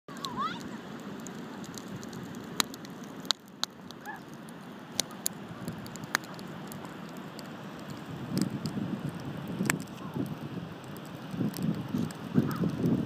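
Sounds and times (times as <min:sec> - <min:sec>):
bonfire crackling and popping: 0:00.1 - 0:13.0
wind buffeting microphone: 0:05.5 - 0:13.0.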